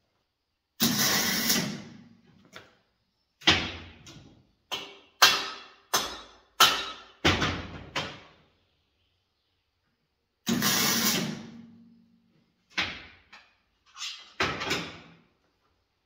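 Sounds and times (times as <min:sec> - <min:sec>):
welding burst: 0:00.8 - 0:01.9, 0:10.5 - 0:11.5.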